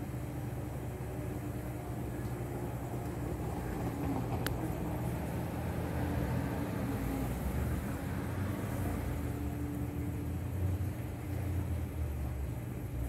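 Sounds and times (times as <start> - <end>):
vehicle engine rumbling: 0.6 - 13.0.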